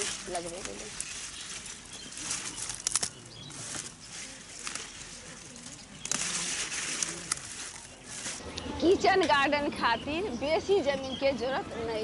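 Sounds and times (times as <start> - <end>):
crisp clicks: 0.0 - 8.7
garden plants rustling: 0.0 - 9.6.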